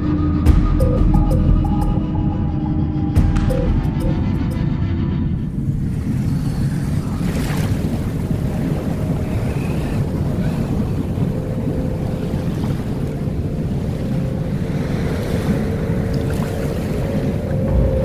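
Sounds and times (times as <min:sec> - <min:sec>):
wind buffeting microphone: 0:03.2 - 0:18.0
waves and water rushing: 0:05.4 - 0:18.0.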